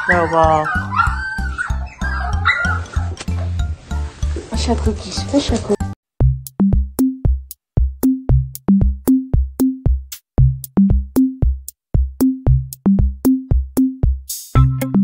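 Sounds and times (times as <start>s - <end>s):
electronic music with bass beat: 6.2s - 15.0s.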